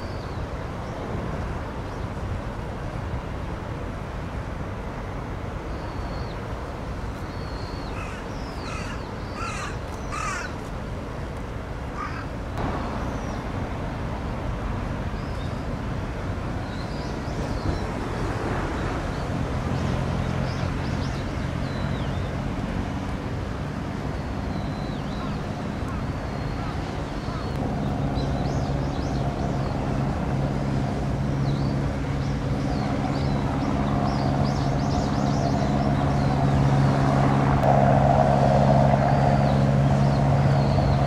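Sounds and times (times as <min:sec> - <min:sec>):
harsh bird calls: 0:07.3 - 0:10.6, 0:12.0 - 0:12.3.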